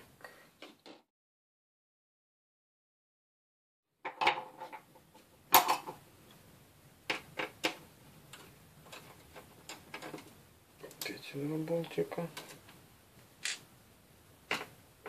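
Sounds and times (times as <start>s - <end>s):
plastic clicks and knocks: 14.5s - 14.7s.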